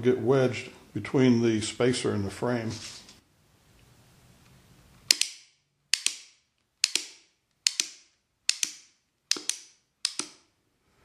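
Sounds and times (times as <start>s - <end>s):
rubber band gun clicking: 5.0s - 10.5s.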